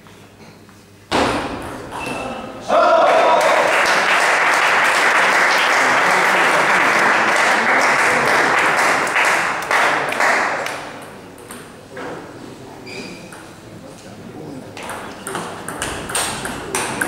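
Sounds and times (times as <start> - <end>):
spectators applauding: 3.0 - 10.8.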